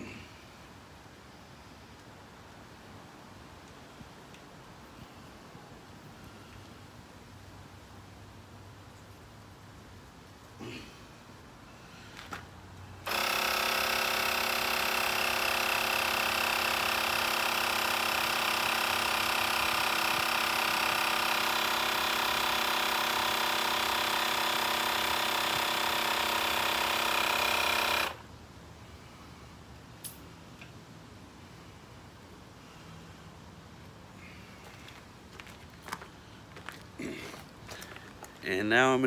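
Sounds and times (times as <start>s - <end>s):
air compressor motor whining: 13.1s - 28.2s.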